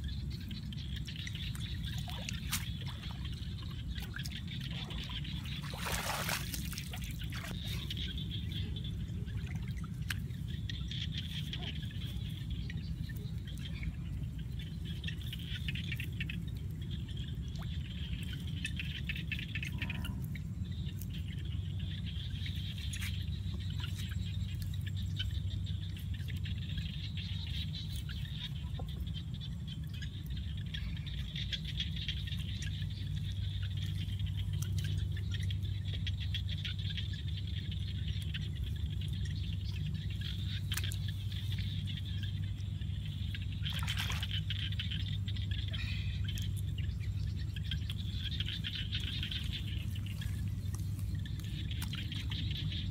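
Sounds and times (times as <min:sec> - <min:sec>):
frogs and insects chirring: 0:00.0 - 0:52.9
rustling of wet stems: 0:00.6 - 0:16.8, 0:32.3 - 0:52.9.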